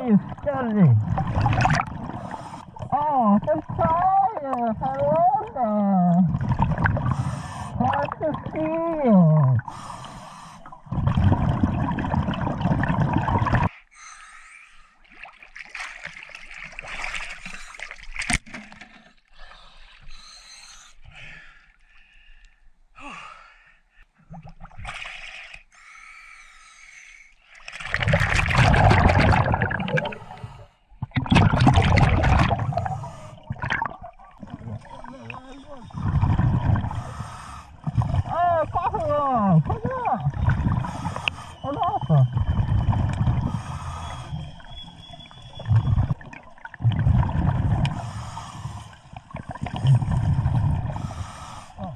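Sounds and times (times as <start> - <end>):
regulator bubbling exhalation: 0.0 - 2.8, 10.6 - 13.7, 27.9 - 38.4, 45.5 - 51.9
water gurgling and sloshing: 0.0 - 13.9, 14.8 - 20.2, 27.4 - 51.9.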